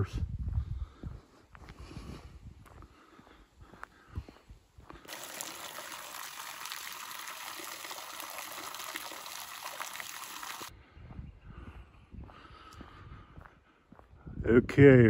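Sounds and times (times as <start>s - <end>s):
water splashing into a pool: 5.1s - 10.7s.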